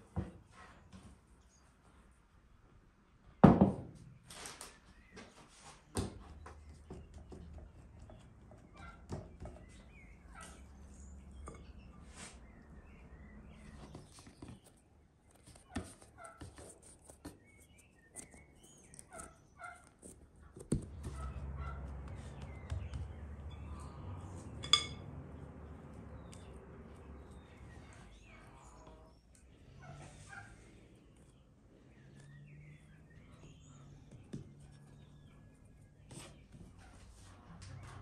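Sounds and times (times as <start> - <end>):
faint bird and poultry calls: 4.0 - 38.0
hands patting bread dough: 20.4 - 23.6.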